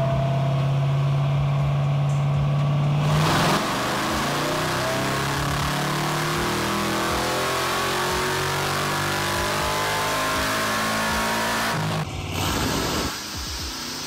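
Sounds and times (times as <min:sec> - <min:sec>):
engine revving at full throttle: 0:02.9 - 0:14.0.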